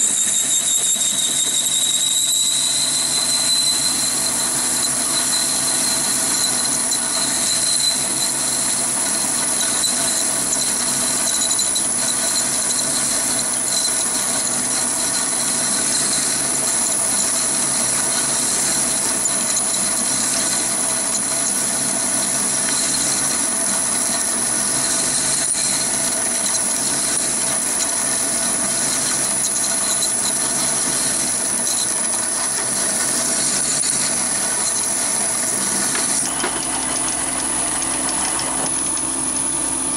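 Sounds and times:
drill cutting into workpiece: 0.0 - 39.9
lathe running: 0.0 - 39.9
high whine: 32.3 - 39.9.

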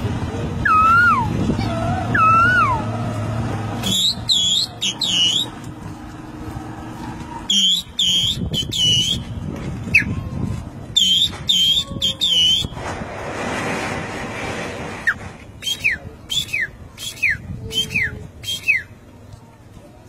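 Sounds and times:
man whistling through fingers: 3.8 - 5.6, 7.5 - 9.2, 11.0 - 12.7, 15.1 - 18.9.

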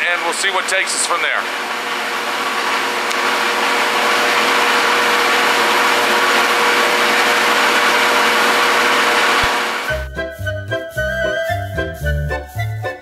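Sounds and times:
pedestal fan whirring: 0.0 - 10.2.

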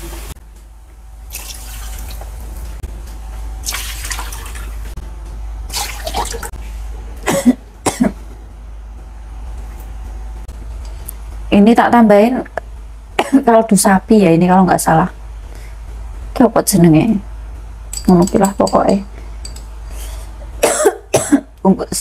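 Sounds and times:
low hum: 0.0 - 20.6
water sloshing in a wok: 1.3 - 2.6, 3.6 - 4.9, 5.7 - 6.5.

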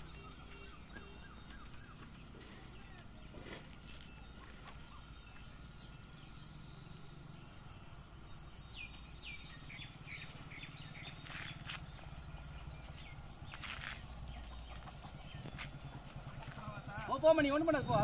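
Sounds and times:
downward-sweeping bird calls: 0.0 - 7.2
birds chirping: 0.0 - 18.0.

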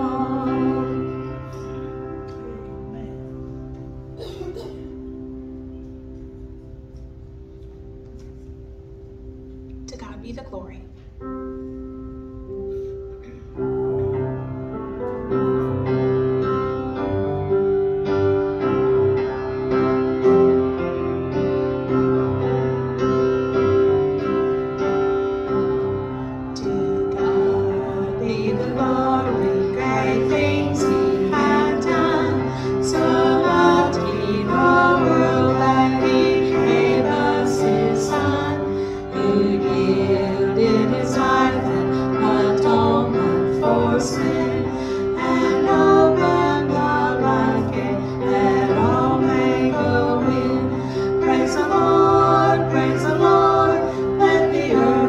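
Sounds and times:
voices singing: 0.0 - 2.6, 26.6 - 55.0
hymn on keyboard: 0.0 - 55.0.

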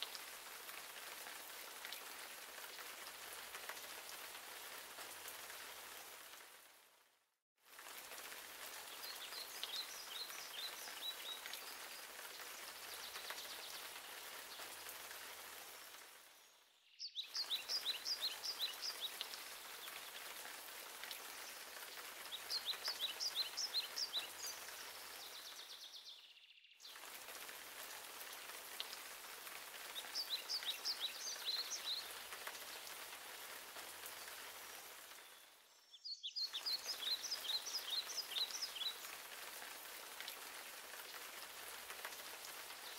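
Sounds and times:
rain pattering: 0.0 - 26.0, 26.8 - 35.7, 36.4 - 42.9
songbird singing: 8.9 - 14.0, 15.9 - 20.2, 21.3 - 27.0, 29.8 - 32.3, 35.2 - 39.1.

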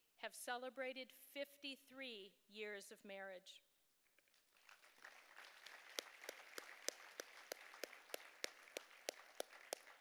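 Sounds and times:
hands clapping close by: 4.2 - 10.0
audience applauding: 4.4 - 10.0.

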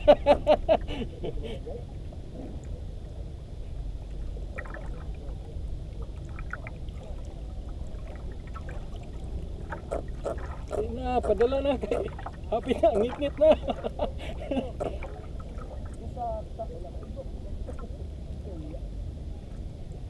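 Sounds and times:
low rumble: 0.0 - 10.9
water lapping against boat hull: 0.0 - 20.0
faint splashes and ticks: 3.6 - 20.0.

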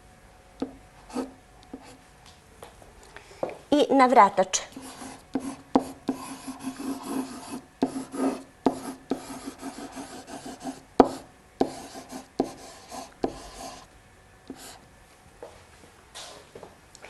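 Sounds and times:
pen scratching on paper: 1.1 - 2.0, 4.7 - 13.9, 14.5 - 14.8
pen tapping on paper: 5.4 - 6.2, 11.0 - 11.8.

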